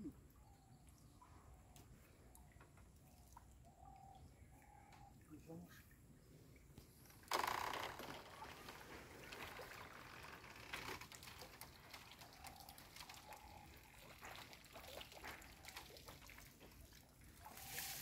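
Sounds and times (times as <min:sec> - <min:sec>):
water dripping and trickling: 0:00.0 - 0:07.3, 0:08.1 - 0:18.0.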